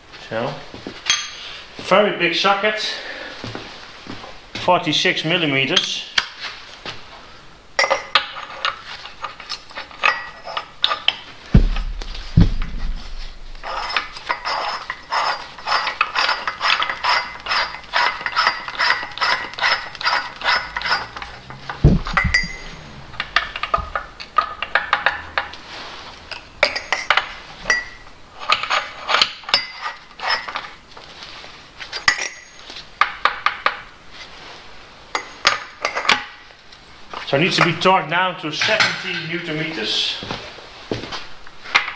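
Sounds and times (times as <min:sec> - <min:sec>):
dull knock: 0:11.5 - 0:13.3, 0:21.8 - 0:22.5.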